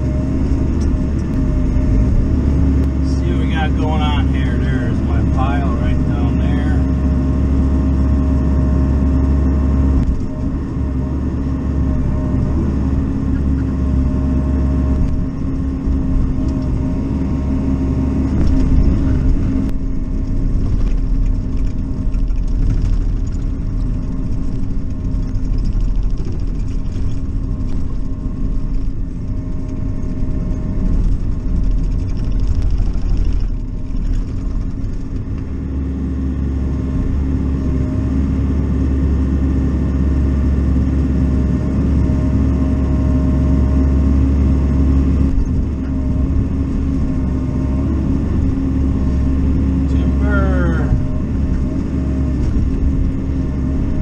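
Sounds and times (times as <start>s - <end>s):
mini excavator diesel engine running: 0.0s - 54.0s.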